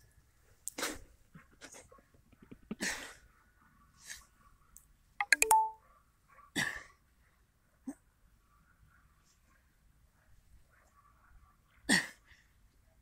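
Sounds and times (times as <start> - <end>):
bright ding: 5.2 - 5.8.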